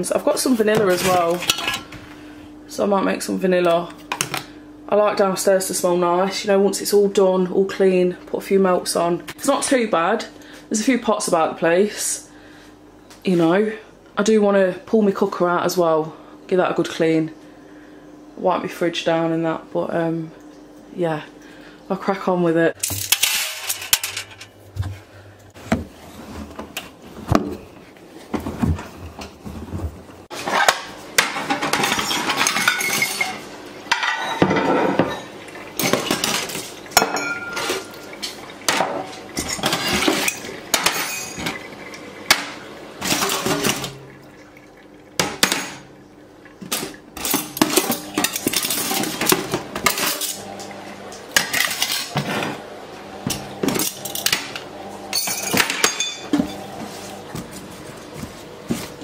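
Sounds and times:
crockery and cutlery clinking in sink: 30.6s - 44.4s, 53.3s - 56.8s.

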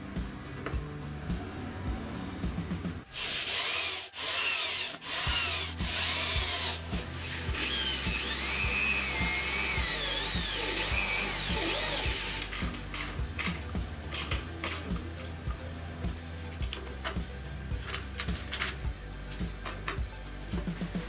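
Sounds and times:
music playing: 0.0s - 21.0s
electric drill boring into wood: 3.1s - 13.6s.

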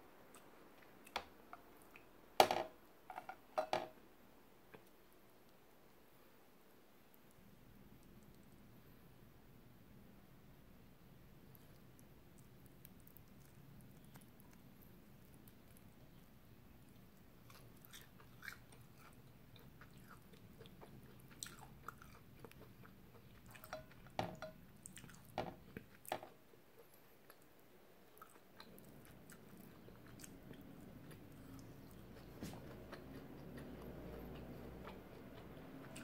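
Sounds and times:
person chewing food: 11.4s - 36.0s.

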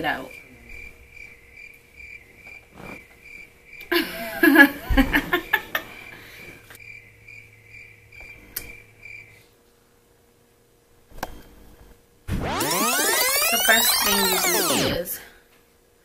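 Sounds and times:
woman laughing: 3.9s - 5.8s
high-pitched repeating chirp: 12.4s - 15.0s.

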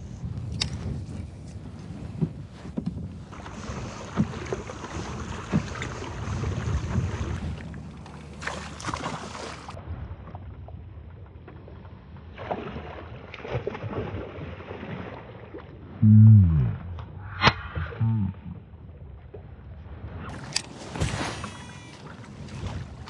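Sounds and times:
wind on microphone: 0.0s - 7.9s
water noise: 0.0s - 23.0s.

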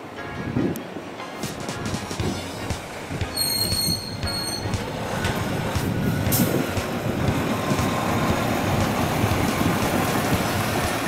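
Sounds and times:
heavy engines rumbling: 0.0s - 11.0s.

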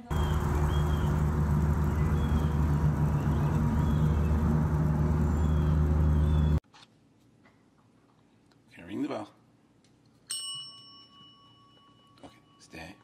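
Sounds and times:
low mechanical hum: 0.0s - 6.6s.

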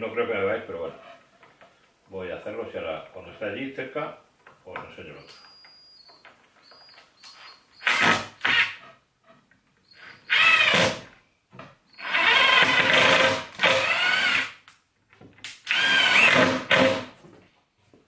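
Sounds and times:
cordless drill driving screws: 7.8s - 8.8s, 10.0s - 11.1s, 12.0s - 14.6s, 15.6s - 17.1s.

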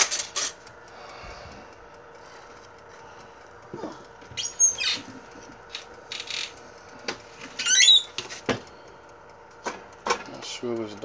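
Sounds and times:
low steady hum: 0.0s - 11.0s
high squeaks bending in pitch: 4.4s - 5.1s, 7.6s - 8.2s.

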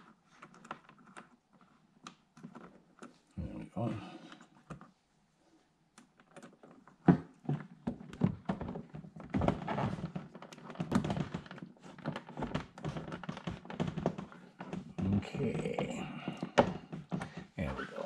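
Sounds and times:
knocks taps and rattles: 6.0s - 17.6s.

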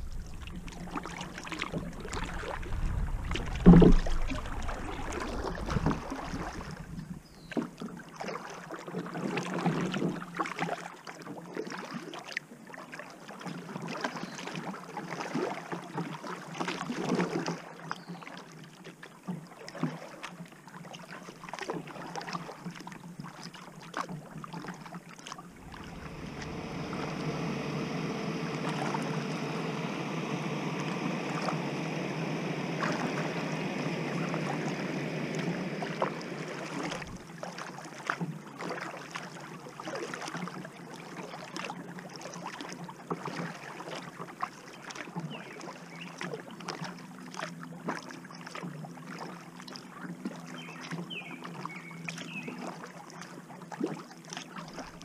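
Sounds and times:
steady rushing noise: 0.0s - 6.9s, 25.5s - 37.3s
water drips and splashes: 0.0s - 27.0s, 32.8s - 55.0s
paddle dipping into water: 0.0s - 55.0s.

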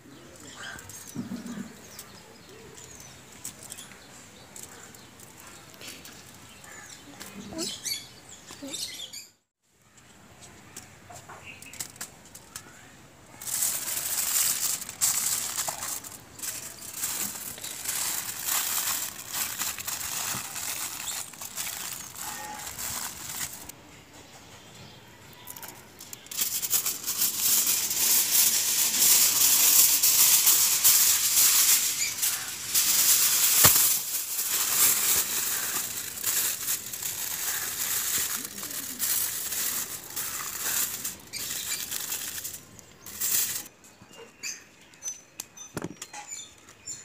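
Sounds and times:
aluminium foil crinkling: 11.4s - 23.8s, 25.5s - 43.7s.

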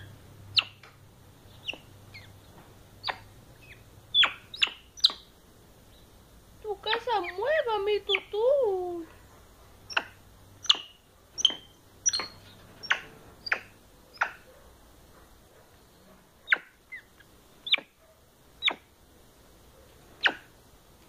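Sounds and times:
monkey squeaking: 0.5s - 0.8s, 3.0s - 5.3s, 6.9s - 8.4s, 9.9s - 14.4s, 16.5s - 18.0s, 18.6s - 18.9s, 20.2s - 20.5s.

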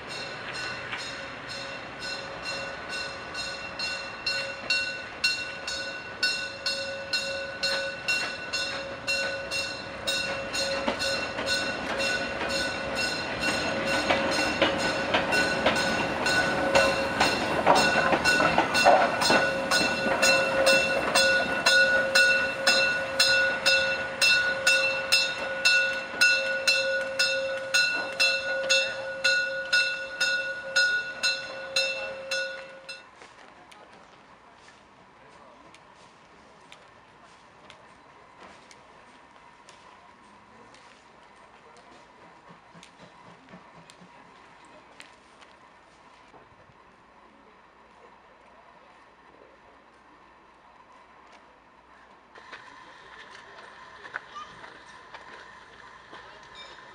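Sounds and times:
steam locomotive exhaust chuffs: 0.0s - 33.0s, 38.4s - 46.0s.

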